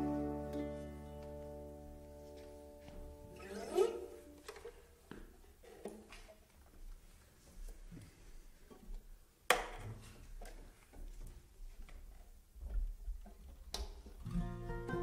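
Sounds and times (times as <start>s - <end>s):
plucked string notes: 0.0s - 4.3s, 14.2s - 15.0s.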